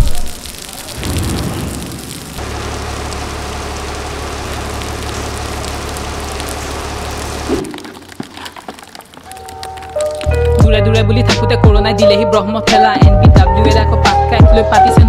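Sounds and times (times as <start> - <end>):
rain on hard surface: 0.0 - 10.6.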